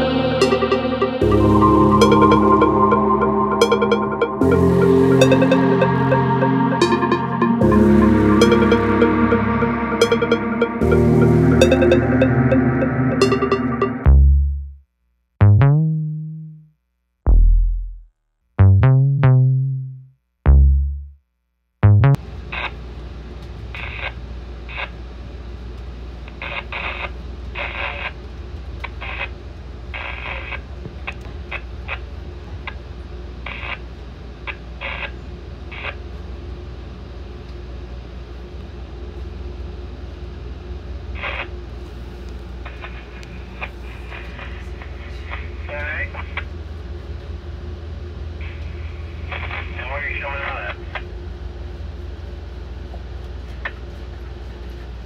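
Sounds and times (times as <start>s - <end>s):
electronic background music: 0.0s - 14.7s.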